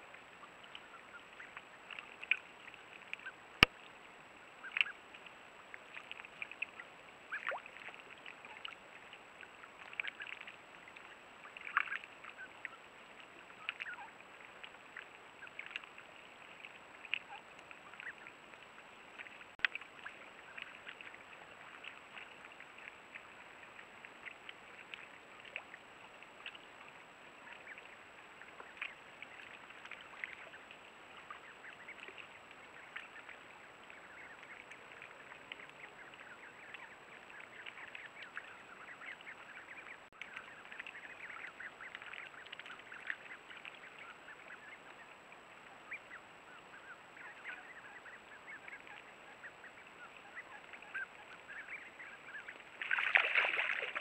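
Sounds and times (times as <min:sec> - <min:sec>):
ducks splashing in water: 0:04.6 - 0:54.0
ducklings peeping: 0:09.9 - 0:12.9, 0:13.6 - 0:14.2, 0:27.4 - 0:52.7.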